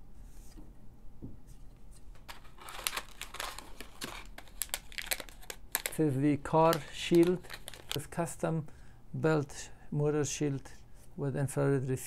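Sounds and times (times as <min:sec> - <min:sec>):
plastic bag crinkling: 0:02.2 - 0:08.2.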